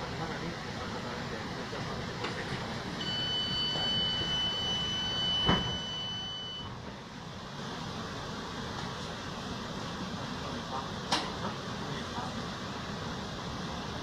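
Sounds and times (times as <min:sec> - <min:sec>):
train carriage hum: 0:00.0 - 0:14.0
high electronic beep: 0:03.0 - 0:06.7.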